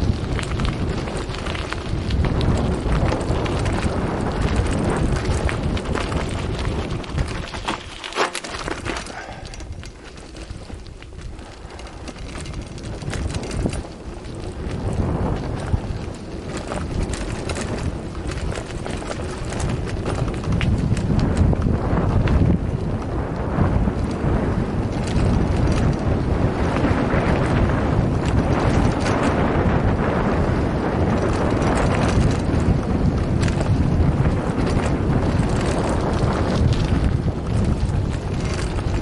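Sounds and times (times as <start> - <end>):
tyres crunching on gravel: 0.0 - 22.5
bike clicks and rattles: 0.0 - 39.0
wind buffeting microphone: 0.0 - 39.0.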